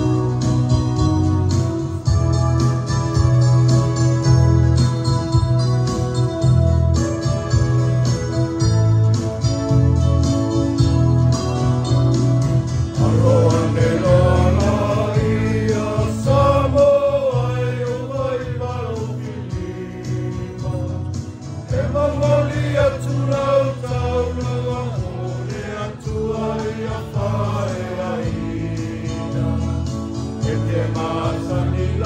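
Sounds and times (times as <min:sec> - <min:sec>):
congregation singing a hymn: 0:12.9 - 0:32.0.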